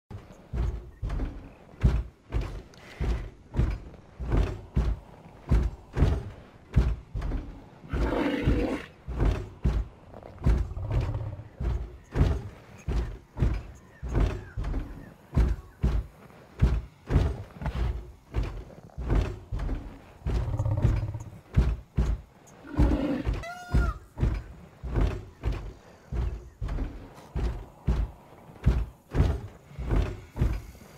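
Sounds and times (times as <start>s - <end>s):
heavy animal footfalls: 0.1s - 30.9s
low growling animal calls: 7.4s - 12.9s, 18.7s - 21.5s, 22.5s - 24.4s.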